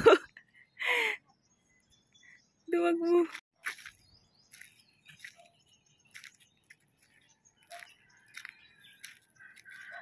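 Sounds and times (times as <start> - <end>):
footsteps on gravel and grass: 3.2 - 10.0.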